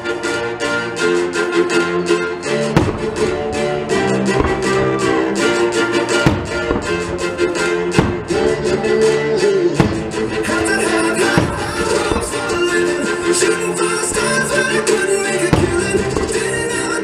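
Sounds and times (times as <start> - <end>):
music playing: 0.0 - 17.0
firework shells bursting: 2.8 - 8.6, 9.8 - 16.8.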